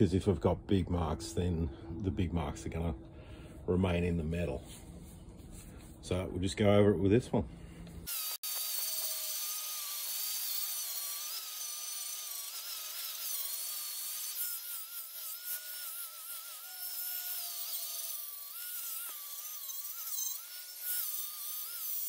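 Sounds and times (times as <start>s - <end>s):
angle grinder on metal: 8.1s - 22.0s.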